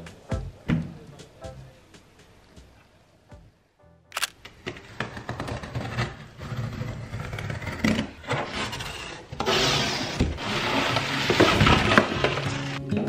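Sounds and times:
cardboard flaps scraping: 0:04.5 - 0:12.8.

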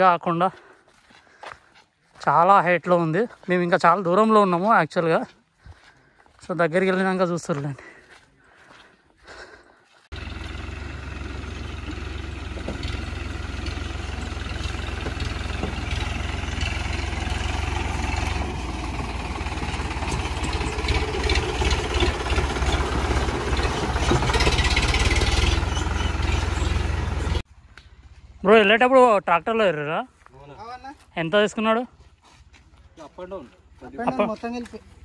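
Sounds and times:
tractor diesel engine rumbling: 0:00.0 - 0:27.5.

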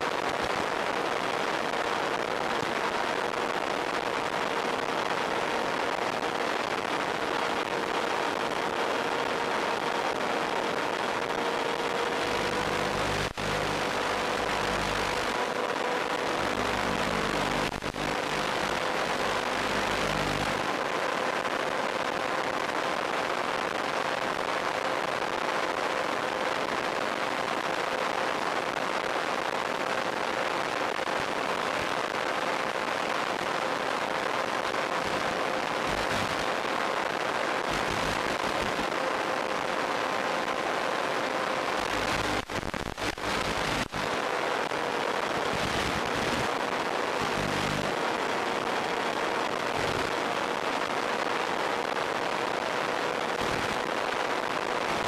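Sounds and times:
radio hiss: 0:00.0 - 0:55.0
steady whine: 0:01.7 - 0:22.0.

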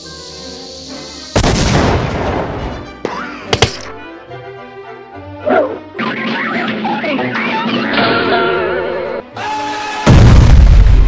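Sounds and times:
cartoon music: 0:05.4 - 0:09.7.

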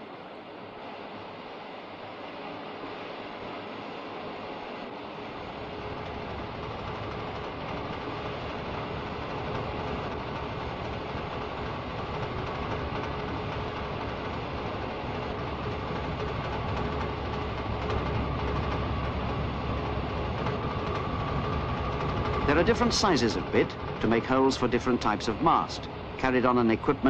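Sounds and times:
faint steady whine: 0:00.0 - 0:27.0
diesel hydraulic unit running: 0:05.4 - 0:27.0.

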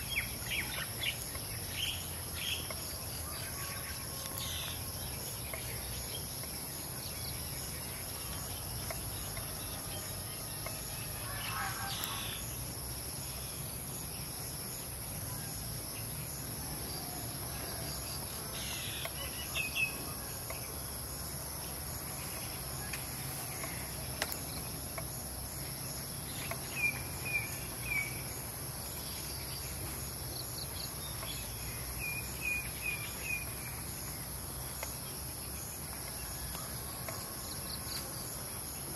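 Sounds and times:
crickets droning: 0:00.0 - 0:38.9
bird chirping: 0:21.6 - 0:38.2.

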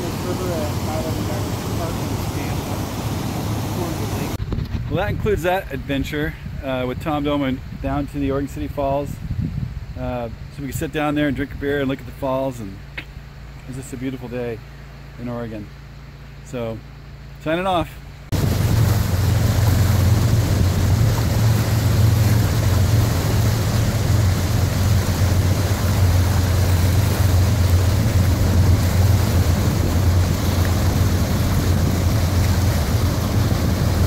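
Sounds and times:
waterfall roaring: 0:00.0 - 0:04.4, 0:18.3 - 0:34.0.

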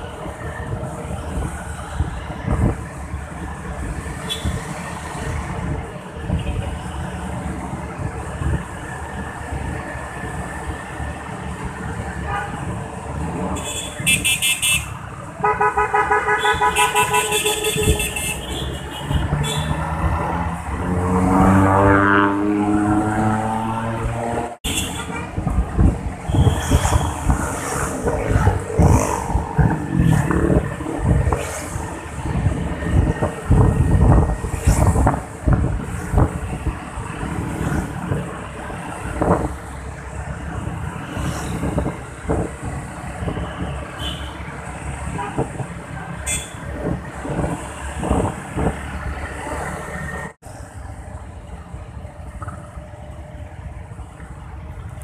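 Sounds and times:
motorcycle and traffic noise: 0:00.0 - 0:55.0
vehicle horns honking: 0:04.3 - 0:04.6, 0:13.6 - 0:19.8, 0:24.6 - 0:25.3, 0:26.3 - 0:27.2, 0:44.0 - 0:44.4, 0:46.2 - 0:46.6
scooter engines droning: 0:18.4 - 0:55.0
wind buffeting microphone: 0:25.2 - 0:39.7.

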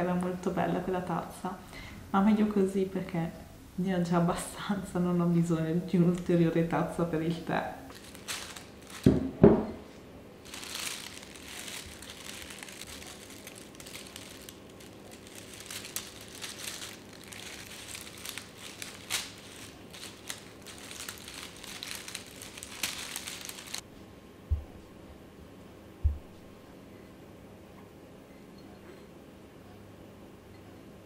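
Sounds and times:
dried leaves crinkling: 0:07.9 - 0:09.4, 0:10.4 - 0:23.9
thumps: 0:24.5 - 0:24.9, 0:26.0 - 0:26.5.

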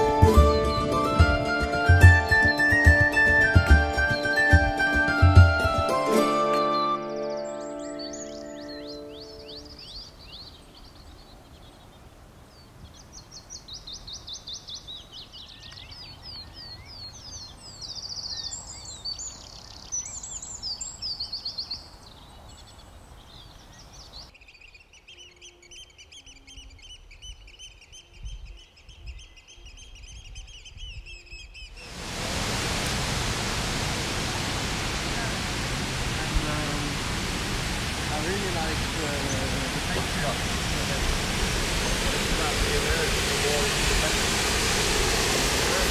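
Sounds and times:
songbirds trilling: 0:06.5 - 0:32.1, 0:34.4 - 0:45.9
rush of falling water: 0:31.8 - 0:45.9.

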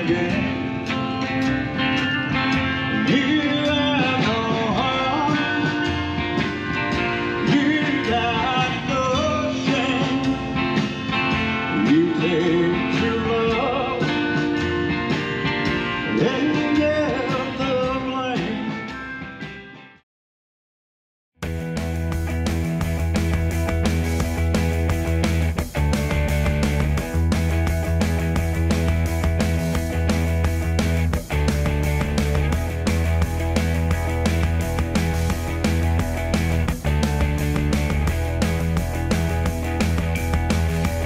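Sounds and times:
upright bass: 0:00.0 - 0:19.5, 0:21.4 - 0:41.0
drum kit: 0:00.0 - 0:19.7, 0:21.4 - 0:41.0
acoustic guitar: 0:00.0 - 0:20.0.

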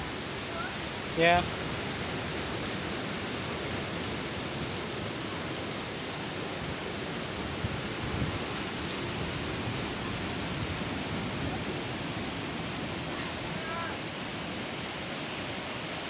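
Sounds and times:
surf breaking on rocks: 0:07.4 - 0:16.0.

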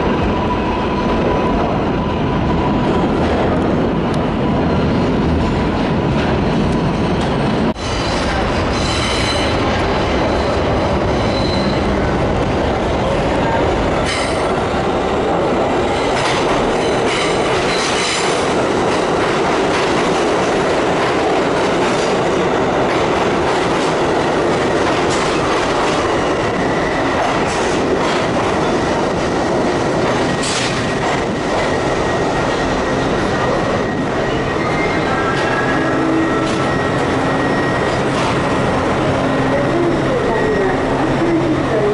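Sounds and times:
subway train wheels rumbling: 0:00.0 - 0:41.9
high wheel squeal: 0:10.2 - 0:11.9, 0:33.5 - 0:38.4.

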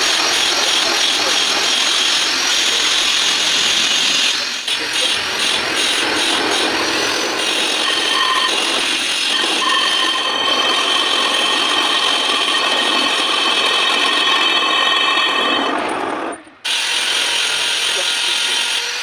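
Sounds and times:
block scraping spinning brake disc: 0:00.0 - 0:19.0
lathe running: 0:00.0 - 0:19.0
high thin ringing tones: 0:07.4 - 0:16.5.

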